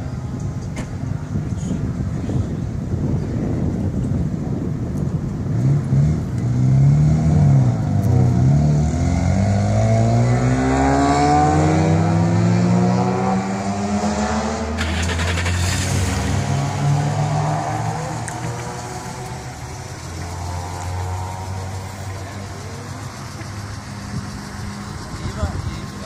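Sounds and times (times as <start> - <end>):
car engine revving: 5.6 - 26.0.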